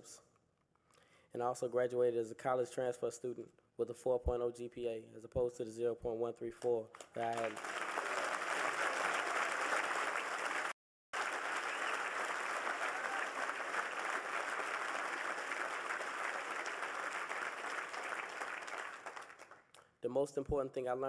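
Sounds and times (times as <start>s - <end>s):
audience applauding: 7.0s - 19.6s.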